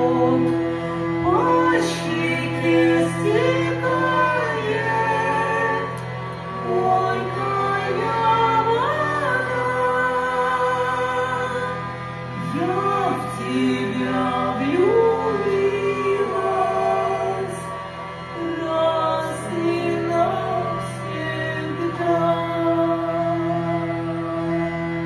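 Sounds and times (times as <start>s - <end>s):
hurdy-gurdy drone and melody: 0.0s - 25.0s
woman singing: 1.2s - 5.9s, 6.6s - 11.8s, 12.4s - 17.7s, 18.4s - 23.8s.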